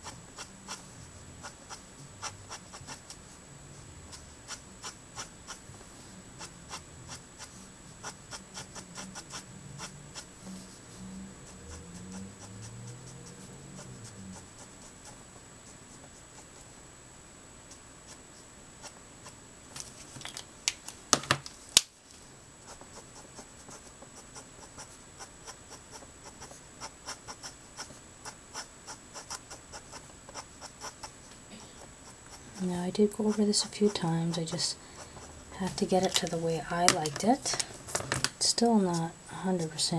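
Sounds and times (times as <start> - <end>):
felt marker scratching on paper: 0.0 - 10.8, 11.4 - 16.7, 22.7 - 31.2, 31.8 - 37.4
marker tapping: 35.7 - 38.8.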